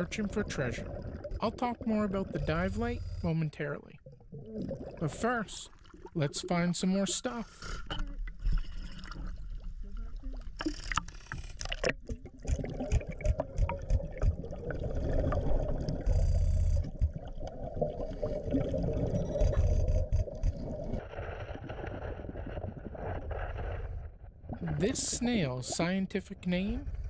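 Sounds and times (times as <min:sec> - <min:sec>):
exhaled bubbles bursting: 0:00.0 - 0:02.6, 0:04.0 - 0:06.8, 0:11.6 - 0:23.5
water splashing and sloshing: 0:00.0 - 0:02.9, 0:03.6 - 0:26.8
muffled underwater noise: 0:00.0 - 0:11.5.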